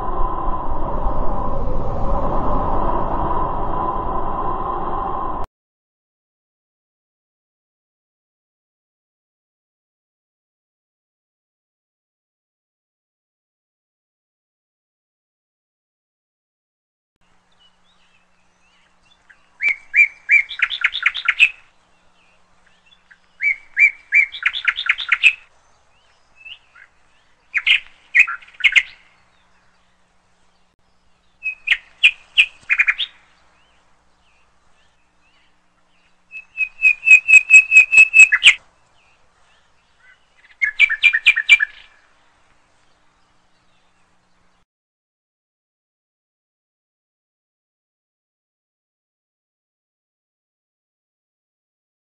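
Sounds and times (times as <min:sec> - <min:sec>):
songbird chirping and trilling: 0:17.2 - 0:44.6.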